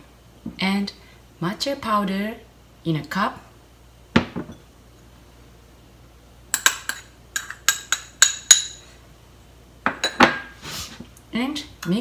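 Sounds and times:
metal spoon clinking on ceramic bowls: 6.5 - 8.9, 9.9 - 10.4.

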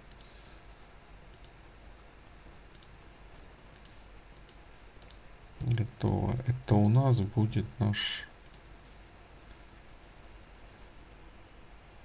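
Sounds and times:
computer mouse clicks: 0.0 - 0.4, 1.3 - 1.6, 2.7 - 3.0, 3.6 - 5.2, 8.4 - 8.7
steady low hum: 0.0 - 12.0.

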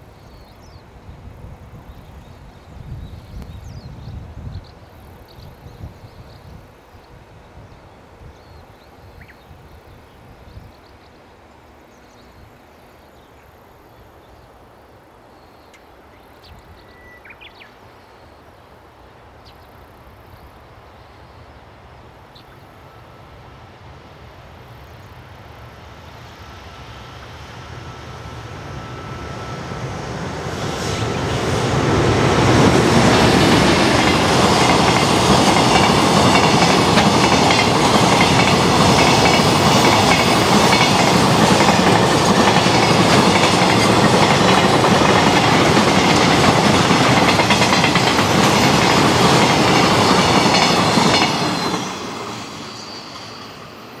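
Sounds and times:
freight train wheels rumbling on rails: 25.9 - 54.0.

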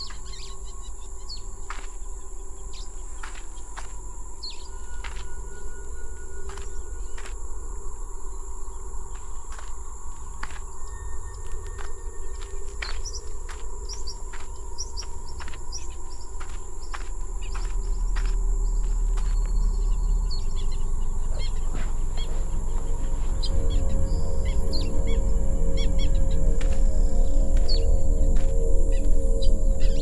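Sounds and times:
birds chirping: 0.0 - 30.0
steady low rumble: 0.0 - 30.0.

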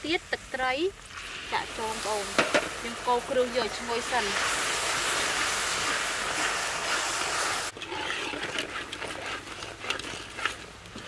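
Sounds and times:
oil sizzling in a wok: 0.0 - 8.4
metal ladle scraping a wok: 1.2 - 10.6.

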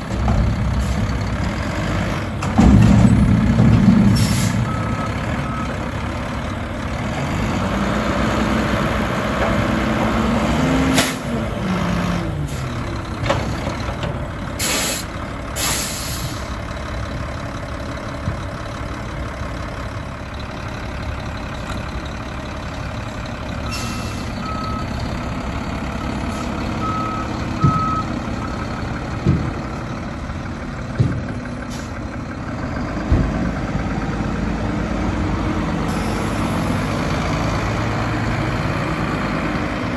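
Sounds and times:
garbage truck engine revving: 0.0 - 16.4
metal clanks: 2.4 - 4.7
backup alarm beeping: 26.8 - 28.6.

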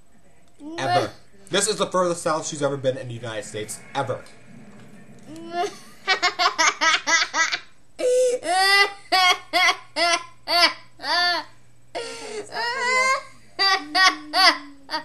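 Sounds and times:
girl laughing evilly: 5.4 - 15.0.

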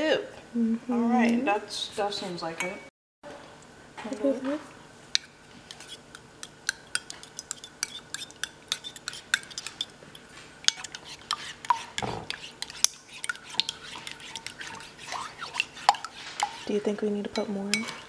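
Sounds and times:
fork clinking in ceramic bowl: 5.2 - 16.7, 17.3 - 18.0.

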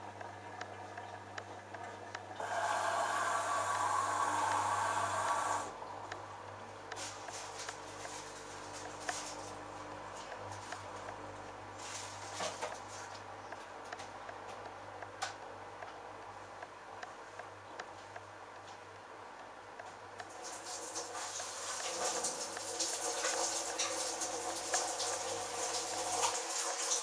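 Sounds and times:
washing machine hum: 0.0 - 17.4, 18.0 - 27.0
water running in hissing: 2.4 - 5.7, 20.3 - 27.0.

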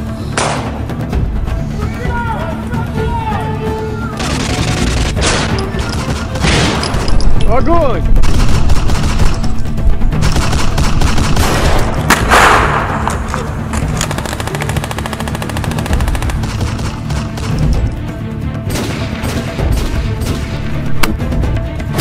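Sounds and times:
automatic gunfire bursts: 8.2 - 9.4, 14.1 - 17.6
loud gunshot report: 11.4 - 13.1.

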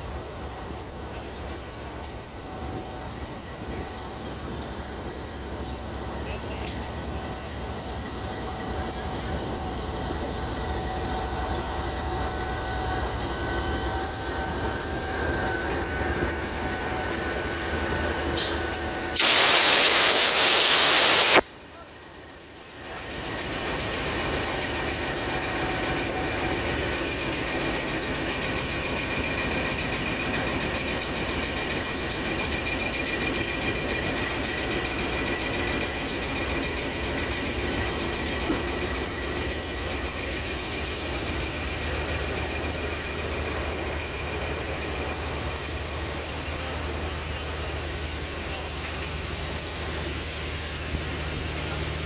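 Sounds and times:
locomotive engine humming: 0.0 - 19.2, 20.9 - 52.0
air hissing: 18.4 - 21.4.

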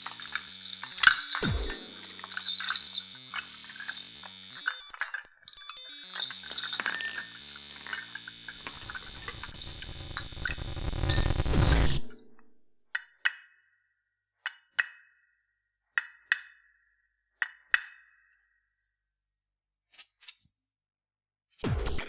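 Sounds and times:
short pitched electronic knocks: 1.4 - 2.1.

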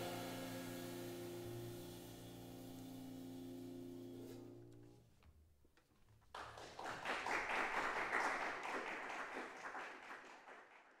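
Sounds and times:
band's low note: 0.0 - 4.6
audience applause: 6.3 - 11.0.

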